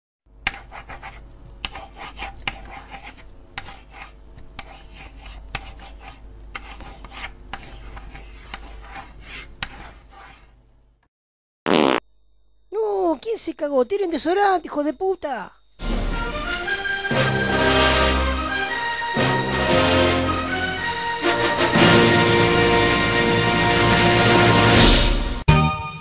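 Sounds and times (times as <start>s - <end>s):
marker scratching on paper: 0.4s - 10.6s.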